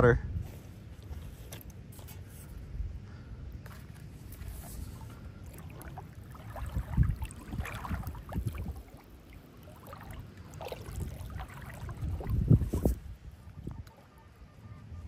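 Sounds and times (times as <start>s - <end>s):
river water sloshing and splashing: 3.7s - 13.5s.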